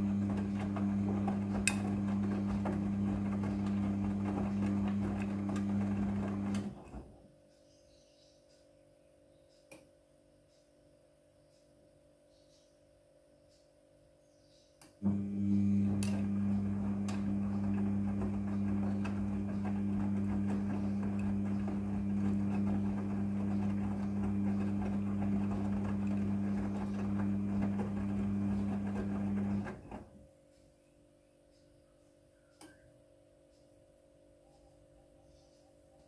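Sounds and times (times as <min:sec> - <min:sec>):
washing machine motor hum: 0:00.0 - 0:07.2, 0:15.0 - 0:30.3.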